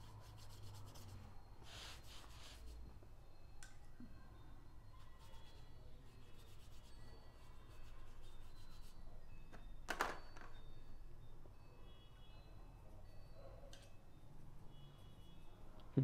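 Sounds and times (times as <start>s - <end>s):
paintbrush rubbing on paper: 0.0s - 2.8s, 6.2s - 8.9s.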